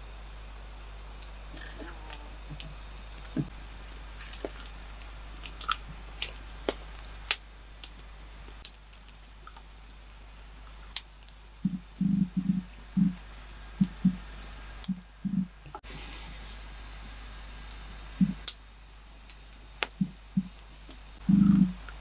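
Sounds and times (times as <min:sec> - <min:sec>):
campfire crackling and popping: 0:00.6 - 0:22.0.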